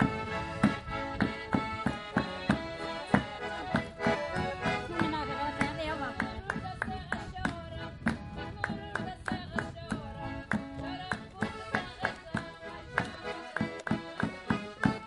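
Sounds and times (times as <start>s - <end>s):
accordion folk tune: 0.0s - 15.0s
hands clapping: 5.6s - 15.0s.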